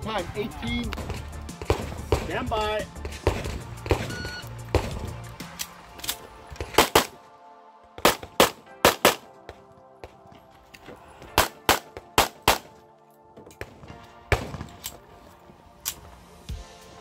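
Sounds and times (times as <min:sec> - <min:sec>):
pistol shots in pairs: 0:01.0 - 0:02.4, 0:03.0 - 0:07.2, 0:08.0 - 0:09.3, 0:11.4 - 0:12.8, 0:13.6 - 0:15.0.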